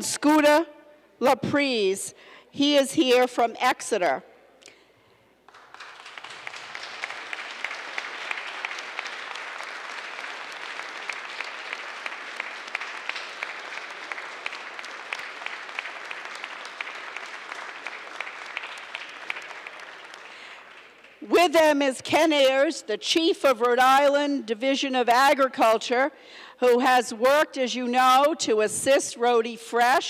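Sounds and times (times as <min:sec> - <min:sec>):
crowd applause: 0:05.5 - 0:21.2.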